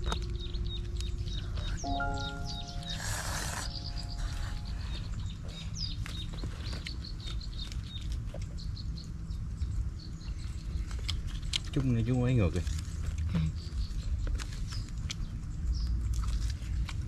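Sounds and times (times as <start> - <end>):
small birds chirping: 0.0 - 16.8
held musical chord: 0.2 - 5.3.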